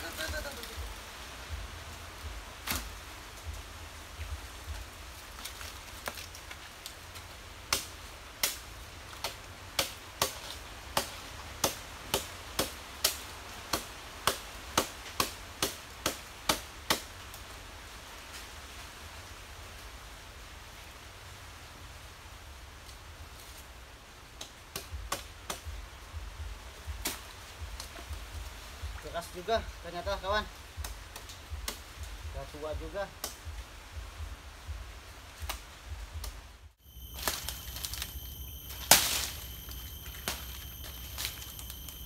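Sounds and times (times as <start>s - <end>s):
chopping strikes on fruit cluster: 9.2s - 17.1s, 24.4s - 25.7s, 27.0s - 28.0s, 30.8s - 31.9s, 32.8s - 33.5s, 35.4s - 35.6s, 37.2s - 42.0s.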